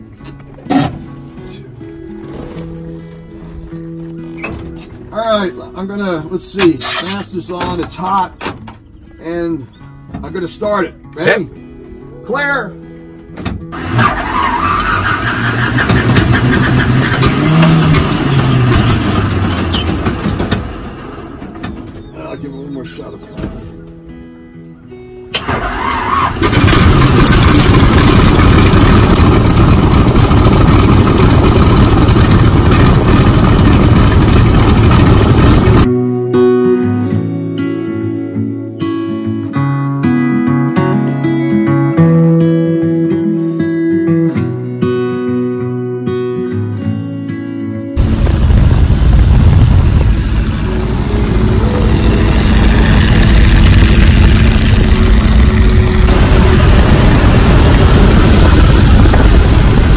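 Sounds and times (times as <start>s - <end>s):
radial engine running: 25.4s - 35.9s, 48.0s - 59.9s
wind rush on microphone: 48.0s - 59.9s.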